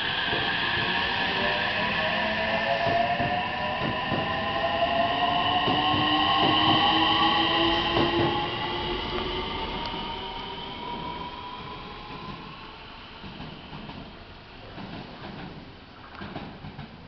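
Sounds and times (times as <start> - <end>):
electric train motors whining: 0.1 - 14.4.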